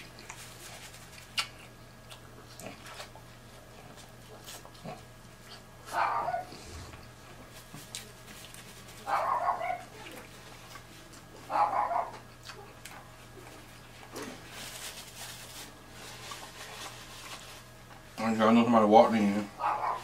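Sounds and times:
dog barking: 5.9s - 6.6s, 9.0s - 9.9s, 11.5s - 12.2s, 19.6s - 20.0s.

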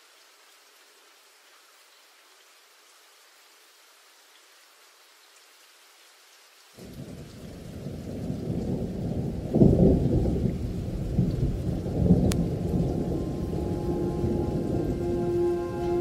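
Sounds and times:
rain: 0.0s - 16.0s
thunder rumbling: 6.8s - 16.0s
low held musical tone: 12.4s - 16.0s.

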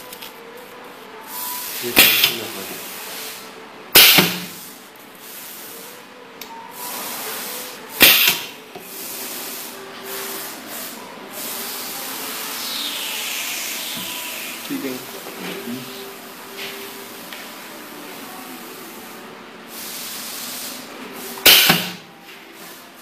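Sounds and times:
compressed air hisses: 6.8s - 14.7s, 19.7s - 22.0s.

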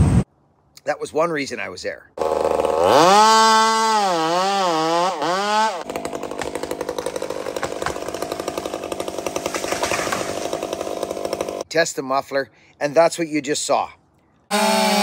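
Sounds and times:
chainsaw revving: 2.2s - 11.6s, 14.5s - 15.0s.

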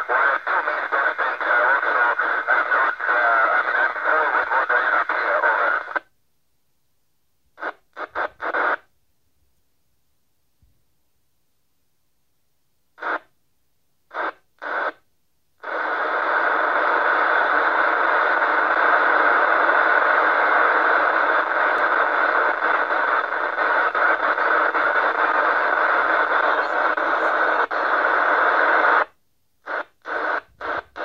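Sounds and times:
radio static bursts: 0.0s - 6.1s, 7.6s - 8.9s, 13.0s - 13.3s, 14.1s - 15.0s, 15.6s - 31.0s
steady radio hiss: 0.0s - 6.2s, 7.4s - 9.0s, 12.9s - 13.4s, 14.0s - 31.0s.

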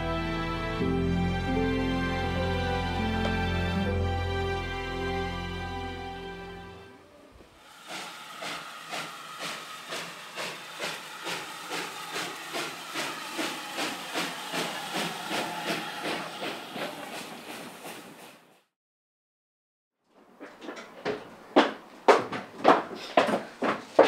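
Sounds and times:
hissing steam: 7.6s - 18.4s
steam locomotive chuffing: 7.7s - 18.5s.

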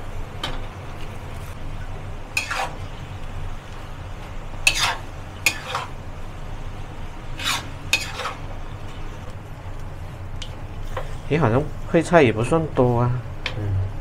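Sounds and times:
low sizzle: 0.0s - 14.0s
steady low hum: 0.0s - 14.0s
metal spatula scraping a wok: 2.3s - 3.0s, 4.6s - 6.0s, 7.3s - 8.5s.

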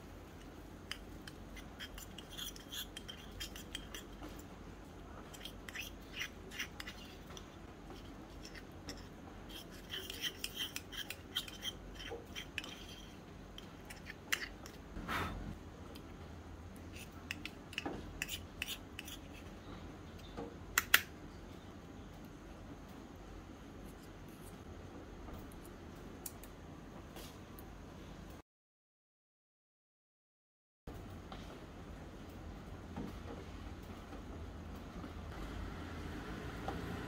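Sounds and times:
spoon scraping metal pan: 0.9s - 4.4s, 5.3s - 14.8s, 17.0s - 19.5s.

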